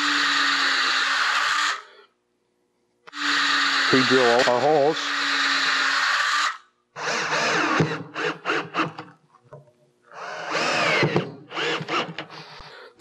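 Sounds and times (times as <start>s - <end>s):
power drill bursts: 3.1s - 9.0s, 10.2s - 12.6s.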